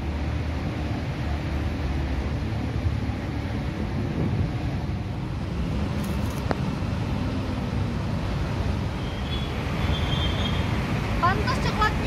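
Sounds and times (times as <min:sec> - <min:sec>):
low rumble of city traffic: 0:00.0 - 0:12.0
wind buffeting microphone: 0:02.4 - 0:08.9.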